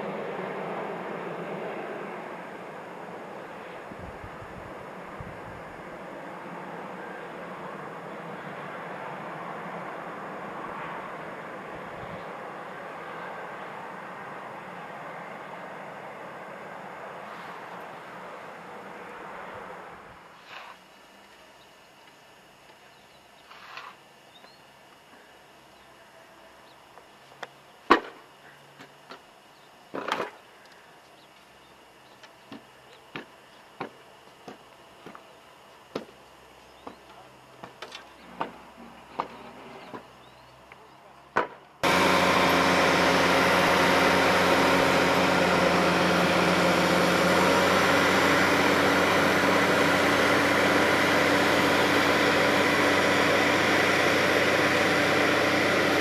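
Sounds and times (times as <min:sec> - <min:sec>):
engine droning: 0:00.0 - 0:23.0, 0:28.4 - 0:56.0
snow blower throwing snow: 0:41.8 - 0:56.0.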